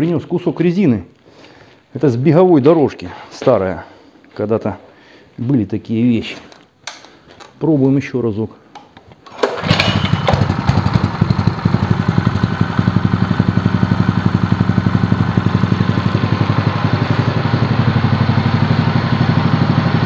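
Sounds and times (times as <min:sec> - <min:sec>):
petrol engine idling: 0:09.4 - 0:20.0.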